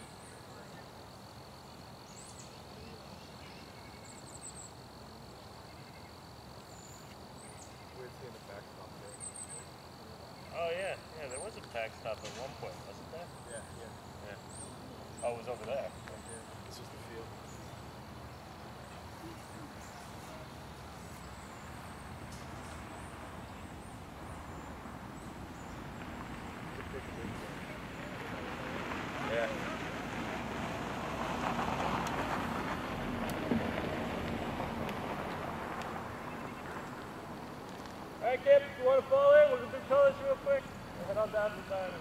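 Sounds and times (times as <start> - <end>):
crickets trilling: 0.0 - 42.0
faint bird chirps: 2.0 - 4.8, 5.4 - 8.1, 9.0 - 10.6.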